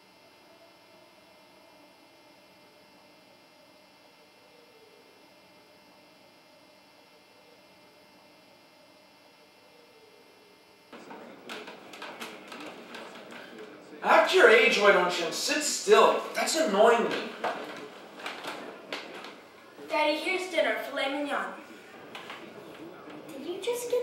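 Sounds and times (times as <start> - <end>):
electrical mains hum: 0.0 - 24.0
room noise: 0.0 - 24.0.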